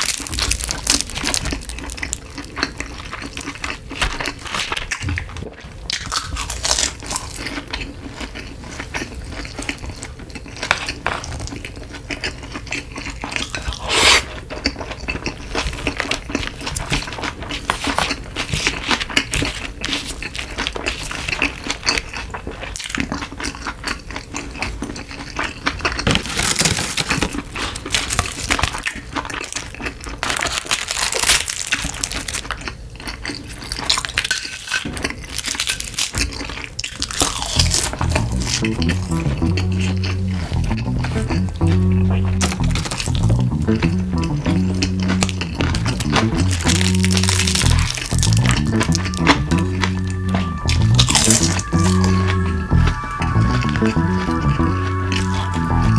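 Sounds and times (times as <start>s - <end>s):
seaweed sheets crinkling: 0.0s - 5.4s, 26.1s - 32.6s, 42.4s - 43.3s, 45.0s - 52.2s
chewing: 0.0s - 55.9s.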